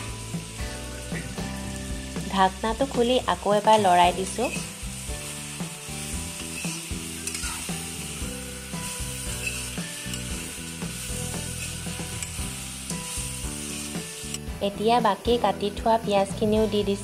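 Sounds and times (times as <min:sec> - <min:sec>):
background music: 0:00.0 - 0:17.0
meat sizzling in hot oil: 0:00.0 - 0:17.0
metal ladle scraping a pan: 0:04.3 - 0:14.5.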